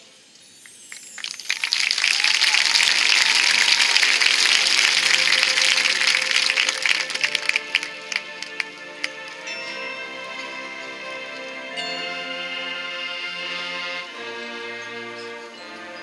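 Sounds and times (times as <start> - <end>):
audience applause: 1.0 - 10.7.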